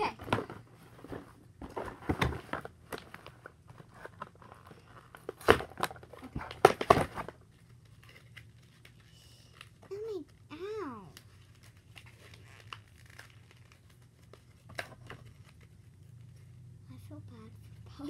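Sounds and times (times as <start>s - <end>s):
plastic packaging crinkling and tearing: 2.5s - 16.4s.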